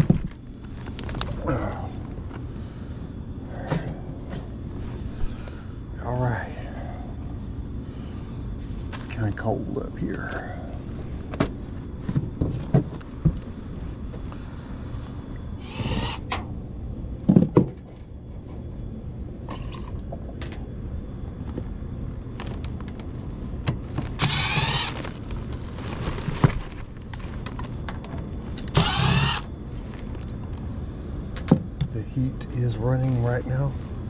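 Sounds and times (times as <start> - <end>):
furnace blower hum: 0.0 - 34.0
impact driver spinning: 15.6 - 16.3, 24.2 - 25.0, 28.7 - 29.5.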